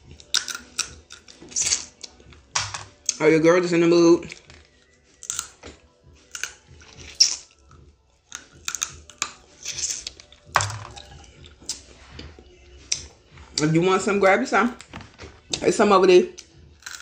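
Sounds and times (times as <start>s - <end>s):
chewing: 0.2s - 3.2s, 4.2s - 13.1s
crab shell cracking: 5.2s - 5.6s, 6.3s - 7.6s, 8.3s - 11.0s.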